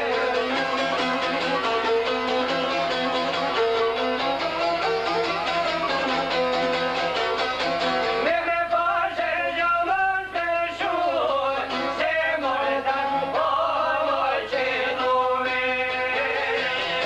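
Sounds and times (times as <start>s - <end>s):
strummed lutes: 0.0s - 9.9s, 10.7s - 17.0s
man singing: 8.2s - 17.0s.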